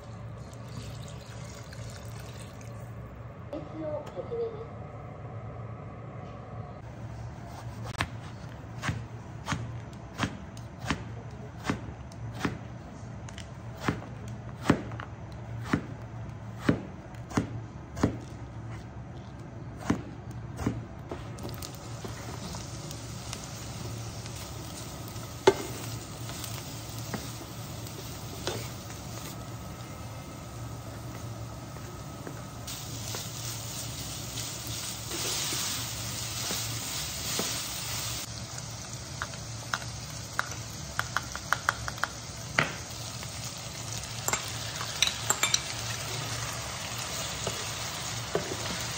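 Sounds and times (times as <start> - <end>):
knife chopping on cutting board: 13.8 - 16.0, 16.6 - 18.3
vegetables sizzling in frying pan: 21.4 - 31.2, 32.6 - 48.9.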